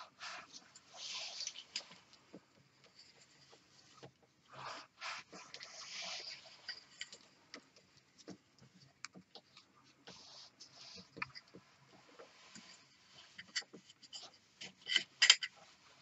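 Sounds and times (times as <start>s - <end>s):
cord rubbing and scraping: 0.0s - 16.0s
light handling clicks and knocks: 6.7s - 10.2s, 10.9s - 15.6s.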